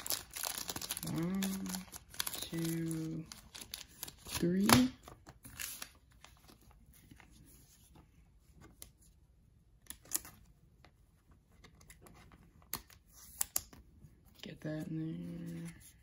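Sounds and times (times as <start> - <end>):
trading cards rustling: 0.0 - 8.0.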